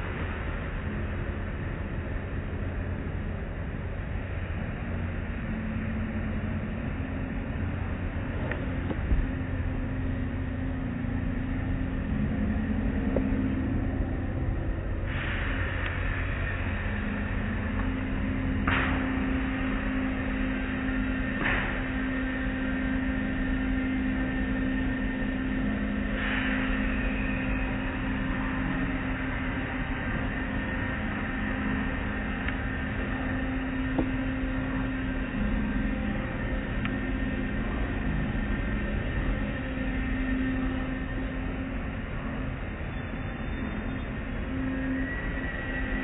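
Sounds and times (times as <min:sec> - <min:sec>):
car wash machinery hum: 0:00.0 - 0:46.0.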